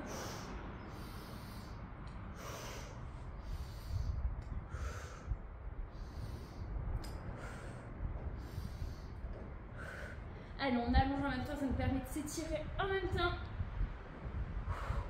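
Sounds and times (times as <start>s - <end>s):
woman breathing hard: 0.0s - 10.6s, 14.3s - 15.0s
low rumble: 0.0s - 15.0s.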